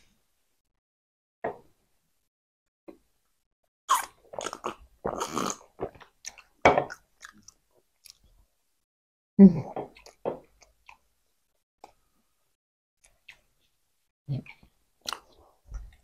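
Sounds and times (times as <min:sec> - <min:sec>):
wet chewing and mouth noises: 0:03.9 - 0:08.3.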